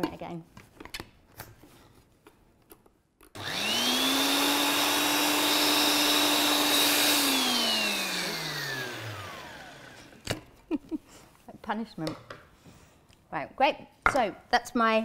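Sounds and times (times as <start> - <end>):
blender whining: 3.4 - 10.2.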